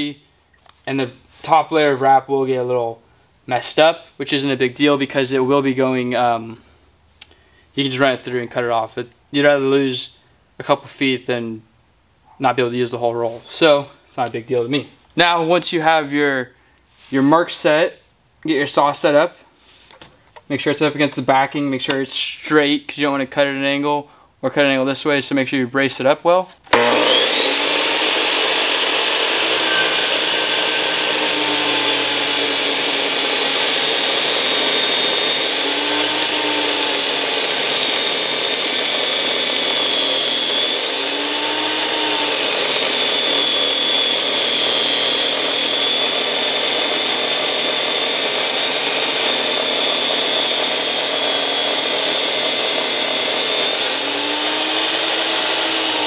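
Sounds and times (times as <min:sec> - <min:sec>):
miter saw cutting vinyl: 0:26.7 - 0:56.0.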